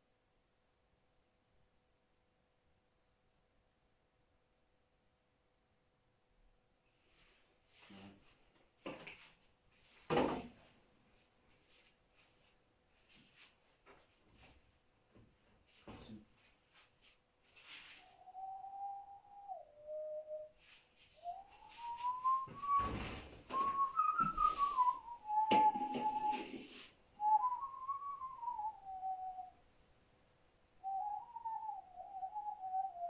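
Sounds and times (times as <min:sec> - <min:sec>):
thumps and rustles of movement: 0:13.1 - 0:17.6, 0:21.8 - 0:26.8
man whistling a slow melody: 0:18.1 - 0:20.6, 0:21.2 - 0:29.6, 0:30.8 - 0:33.0.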